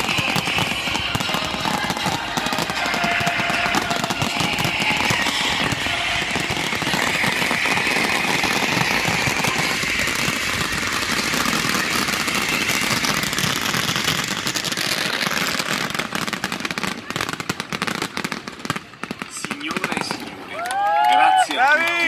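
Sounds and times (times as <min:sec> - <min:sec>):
fireworks bursting and crackling: 0:00.0 - 0:22.0.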